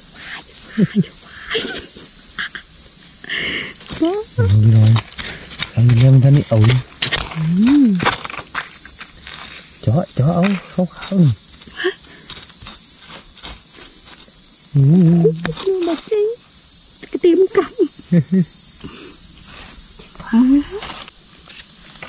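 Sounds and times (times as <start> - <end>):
low voices: 0.0 - 8.3, 9.8 - 12.8, 14.7 - 21.1
insects droning: 0.0 - 22.0
trowel scratching through soil: 4.3 - 9.8.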